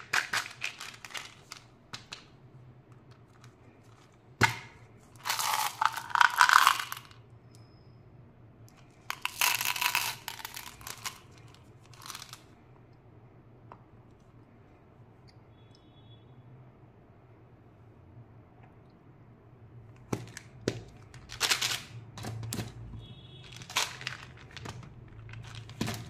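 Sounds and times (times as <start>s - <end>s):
candies rattling as poured: 0.0s - 2.2s, 5.2s - 7.2s, 9.1s - 12.4s, 21.2s - 22.0s, 23.5s - 26.0s.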